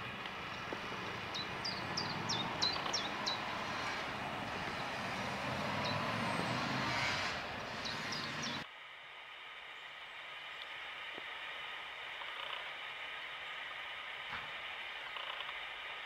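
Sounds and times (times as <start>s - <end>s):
small bird chirping: 0.0s - 5.0s, 7.6s - 8.6s
distant engine rumble: 0.0s - 8.6s.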